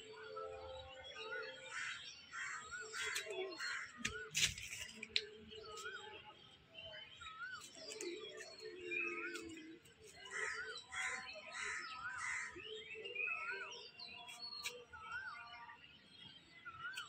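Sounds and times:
crows cawing: 10.3 - 12.5.

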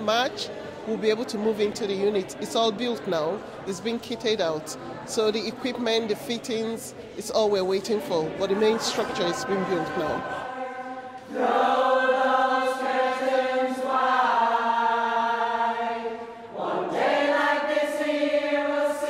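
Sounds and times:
choir singing long notes: 8.5 - 19.0.

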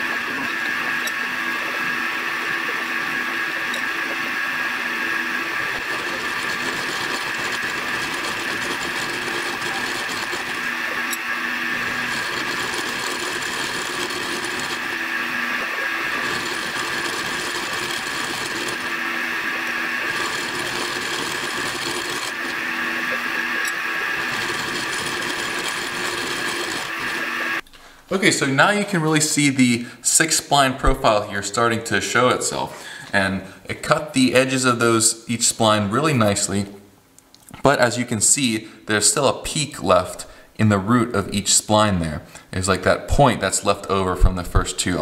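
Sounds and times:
milling machine whine: 0.0 - 27.6.

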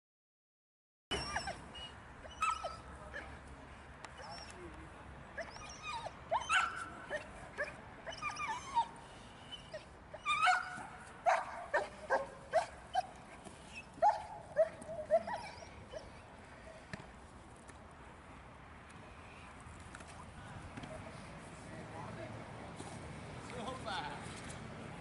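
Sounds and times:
dog yelping barks: 1.1 - 2.9, 5.4 - 8.9, 9.7 - 13.2, 14.0 - 16.1.

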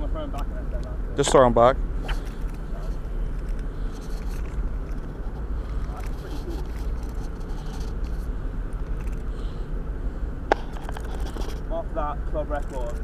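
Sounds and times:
steady low rumble: 0.0 - 13.0
skin rubbing on camera: 2.0 - 8.3.

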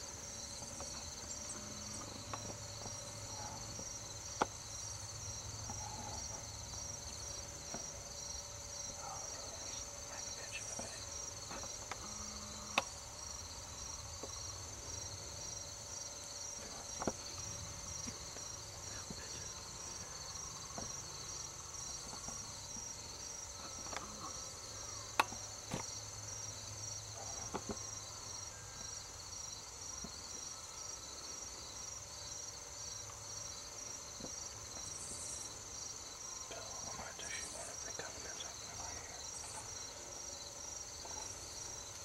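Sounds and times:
crickets chirping: 0.0 - 42.0.

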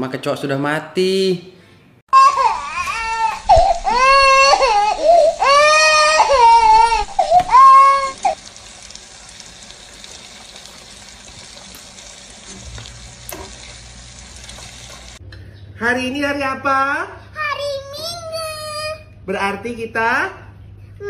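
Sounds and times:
young child crying: 2.1 - 8.4.

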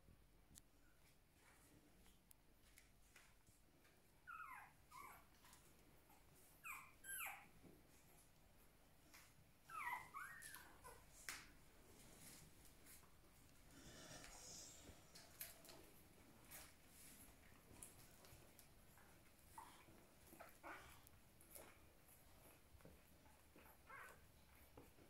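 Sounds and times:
puppies whimpering: 6.6 - 7.5, 9.6 - 11.0.

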